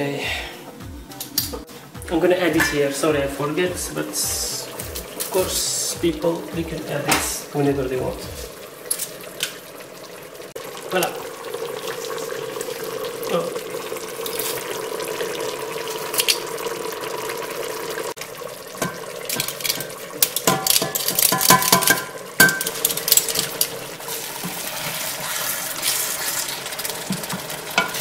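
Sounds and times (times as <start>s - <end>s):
garlic press knocking on metal pot: 18.8s - 22.8s.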